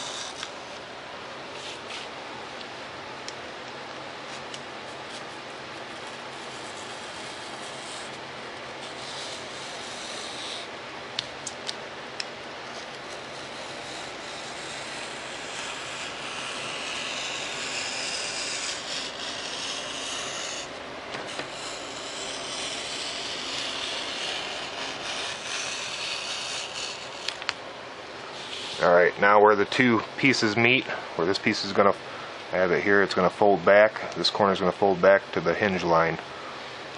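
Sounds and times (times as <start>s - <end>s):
knife blade scoring foam board: 8.8s - 11.7s, 12.7s - 27.6s.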